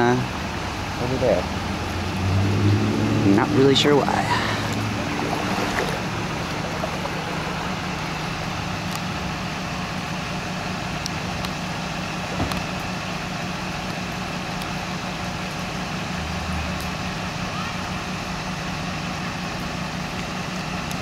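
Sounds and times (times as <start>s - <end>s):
vehicle engine idling: 0.0s - 21.0s.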